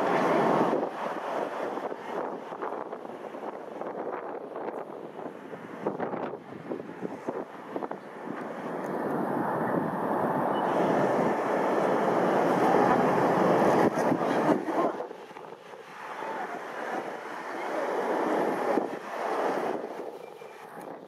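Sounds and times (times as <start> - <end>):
wind on microphone: 0.0 - 21.0
jet engines running: 5.4 - 21.0.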